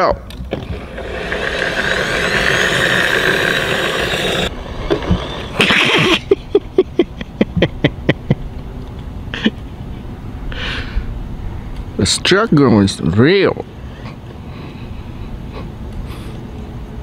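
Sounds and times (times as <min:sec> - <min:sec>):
lawn mower whirring: 0:00.4 - 0:06.5.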